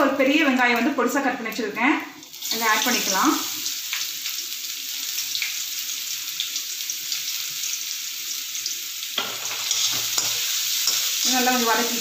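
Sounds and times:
onion sizzling in hot oil: 0.0 - 12.0
metal spoon scraping pan: 9.2 - 11.4.

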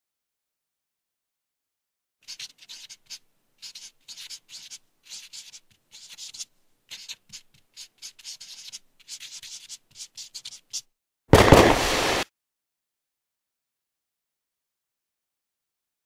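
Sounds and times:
marker pen scratching on paper: 2.2 - 11.0.

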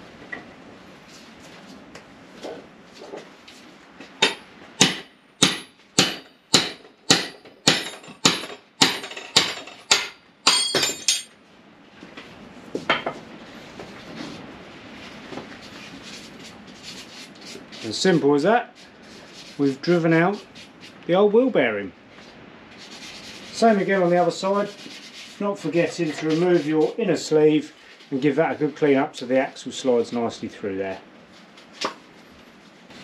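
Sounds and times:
hammer striking metal tool: 4.2 - 11.3.

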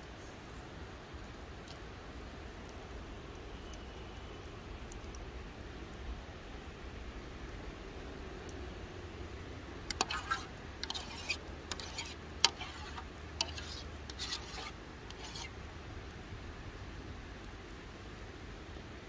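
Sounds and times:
utensil scraping a pan: 9.9 - 15.6.

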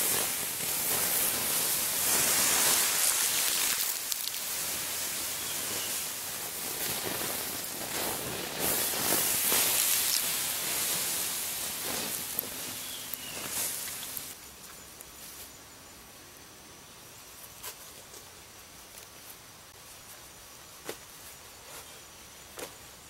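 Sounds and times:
water hissing on hot embers: 0.0 - 15.5.

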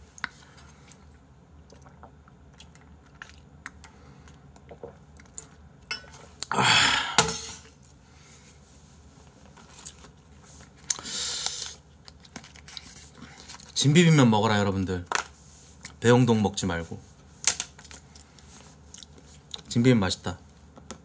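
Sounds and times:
person drinking and swallowing: 1.6 - 3.5, 4.4 - 5.4.

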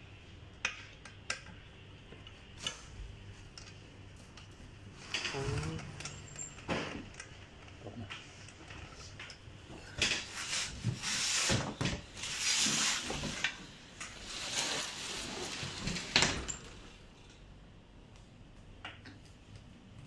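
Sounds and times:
plastic packaging rustling: 12.1 - 16.2.

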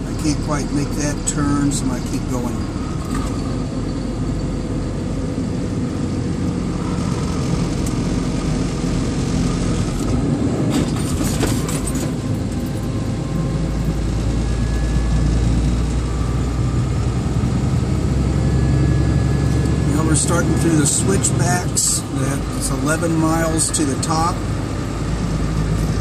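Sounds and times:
vehicle engine low rumble: 0.0 - 26.0.

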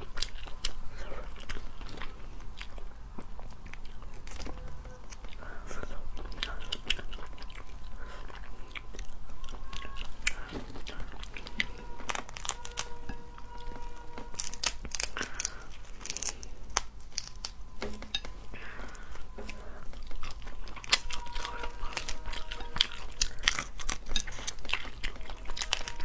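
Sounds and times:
shells cracking by hand: 13.7 - 19.5.

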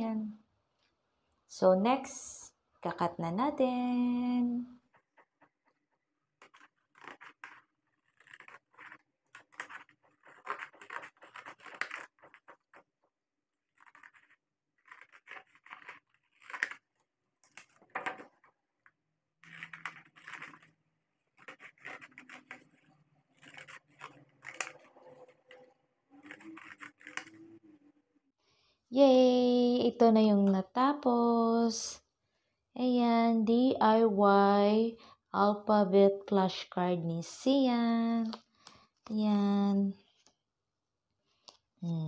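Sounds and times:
scissors snipping: 6.4 - 12.6, 13.8 - 16.8, 21.4 - 25.6, 26.2 - 27.4.

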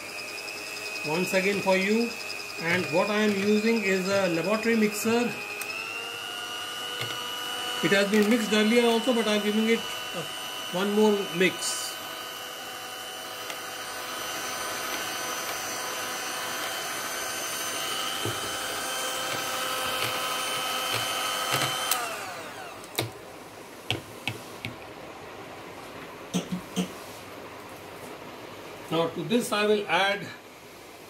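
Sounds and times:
electric mixer whining: 0.0 - 23.2
sharp knocks and clicks: 23.9 - 24.9.

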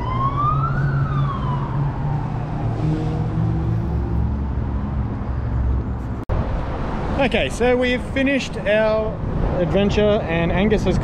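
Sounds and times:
emergency siren wailing: 0.0 - 5.4.

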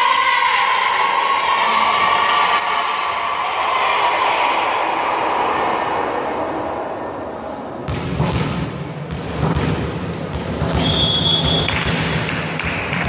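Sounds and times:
volleyball being struck: 7.9 - 13.0
referee's whistle blast: 10.8 - 11.7.

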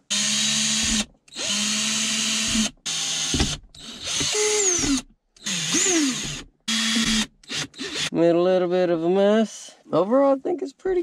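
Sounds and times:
cordless drill boring into plastic: 0.1 - 8.1.

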